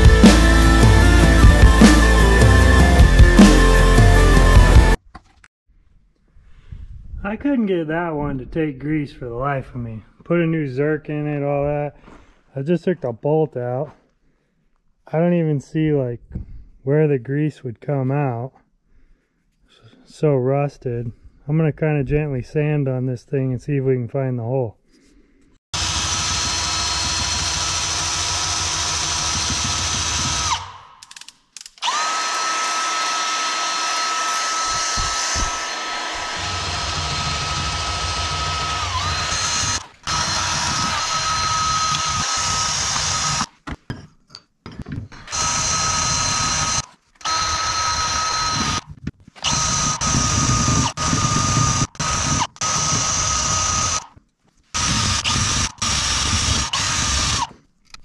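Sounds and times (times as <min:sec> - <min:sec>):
drill motor whining: 0:25.8 - 0:30.8, 0:31.8 - 0:43.5, 0:45.2 - 0:54.2, 0:54.8 - 0:57.6.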